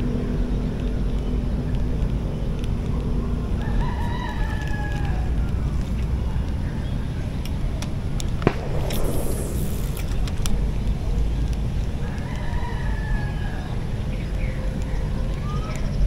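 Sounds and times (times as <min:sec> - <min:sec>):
rooster crowing: 0:03.6 - 0:05.5, 0:12.0 - 0:13.7
steady low rumble: 0:05.0 - 0:12.4
sharp click: 0:08.2 - 0:11.6.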